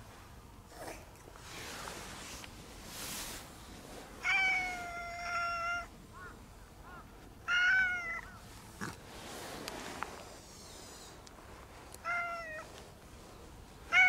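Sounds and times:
cat meowing: 0:04.2 - 0:05.9, 0:07.5 - 0:08.4, 0:12.0 - 0:12.6.

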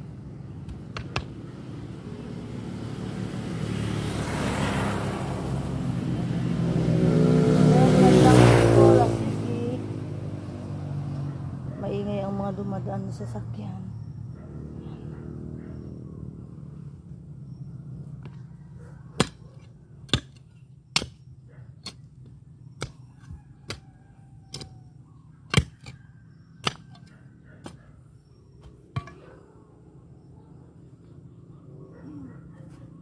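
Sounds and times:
passing vehicle engine: 0:01.4 - 0:19.2
digging tool striking ground: 0:19.1 - 0:24.9, 0:25.5 - 0:27.9.

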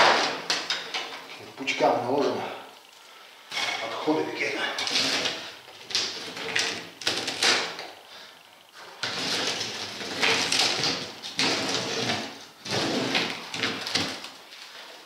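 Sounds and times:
rubber scraping off tire: 0:09.0 - 0:14.2.

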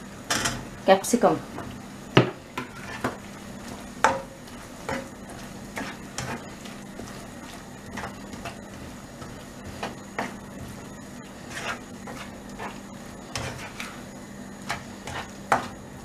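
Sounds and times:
spatula knocking and scraping wok: 0:01.5 - 0:14.0, 0:14.6 - 0:16.0
stirring in thick sauce: 0:02.6 - 0:14.0.

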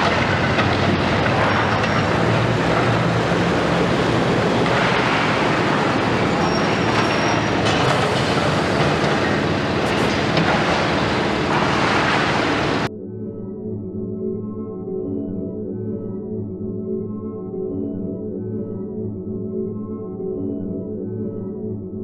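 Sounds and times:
excavator working: 0:00.0 - 0:12.9
truck driving slowly past: 0:00.0 - 0:12.9.

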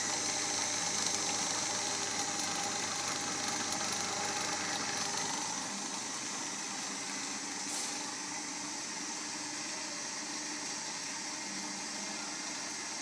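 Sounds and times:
bandsaw motor humming: 0:00.0 - 0:07.6.

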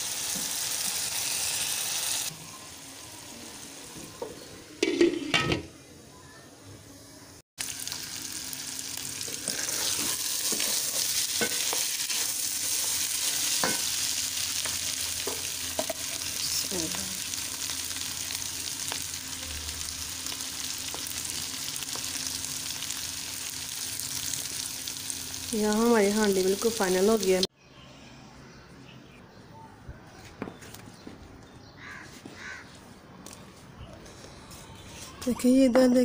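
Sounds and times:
meat sizzling in a pot: 0:00.0 - 0:05.4, 0:07.6 - 0:27.5.

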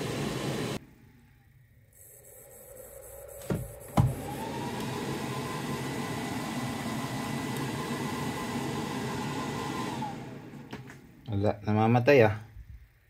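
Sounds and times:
cooling fan whirring: 0:00.0 - 0:00.8, 0:02.1 - 0:11.4.

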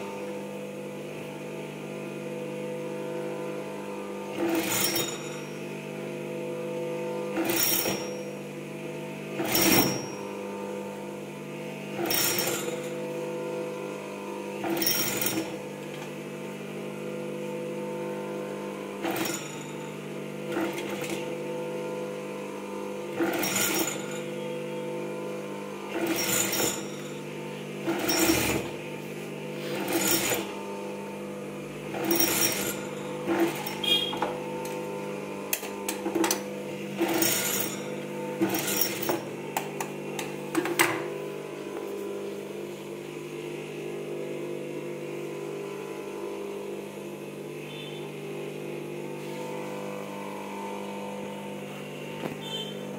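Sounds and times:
motor hum: 0:00.0 - 0:52.9
sewing machine stitching: 0:04.3 - 0:05.4, 0:07.4 - 0:08.2, 0:09.4 - 0:10.2, 0:11.9 - 0:13.0, 0:14.6 - 0:16.1, 0:19.0 - 0:19.9, 0:20.5 - 0:21.4, 0:23.1 - 0:24.5, 0:25.9 - 0:27.2, 0:27.8 - 0:28.8, 0:29.6 - 0:30.6, 0:31.9 - 0:34.9, 0:35.5 - 0:39.3.

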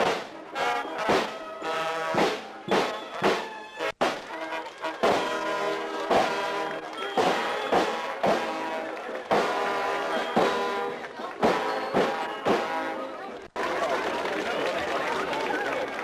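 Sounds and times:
snare drum beat: 0:00.0 - 0:00.3, 0:01.0 - 0:01.4, 0:02.1 - 0:04.3, 0:05.0 - 0:08.7, 0:09.3 - 0:10.8, 0:11.4 - 0:12.8
brass band playing a march: 0:00.0 - 0:13.3.

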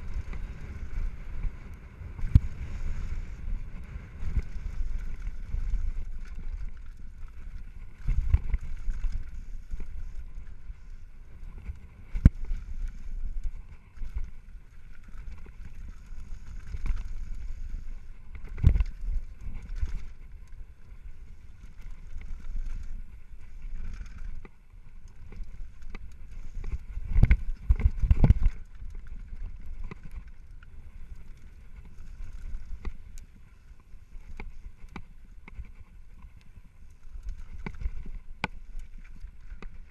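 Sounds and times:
bike rattling: 0:00.0 - 0:39.9
rumble of tyres and air: 0:00.0 - 0:39.9.

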